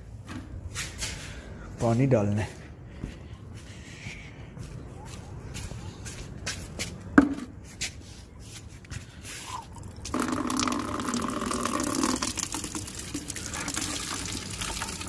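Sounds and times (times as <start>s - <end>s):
water pouring into plastic bucket: 9.9s - 15.0s.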